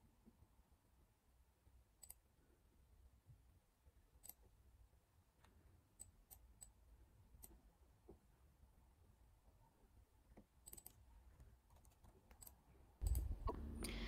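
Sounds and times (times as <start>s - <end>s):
low room hum: 0.0s - 14.0s
computer mouse clicks: 2.0s - 2.2s, 10.6s - 14.0s.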